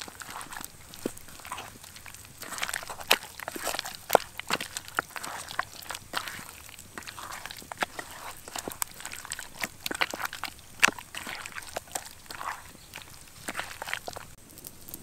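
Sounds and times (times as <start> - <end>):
hands squelching meat in batter: 0.0 - 15.0.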